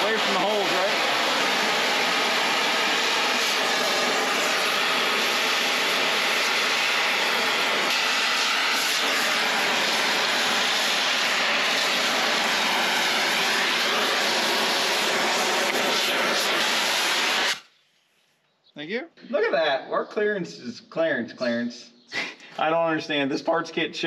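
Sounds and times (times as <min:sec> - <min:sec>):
cutting torch hissing: 0:00.0 - 0:17.7.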